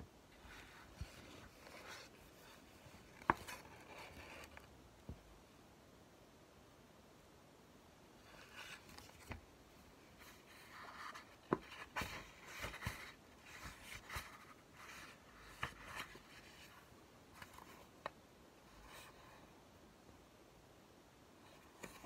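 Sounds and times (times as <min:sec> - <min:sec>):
book pages rustling: 0:00.3 - 0:05.2, 0:08.2 - 0:19.4, 0:21.5 - 0:22.0.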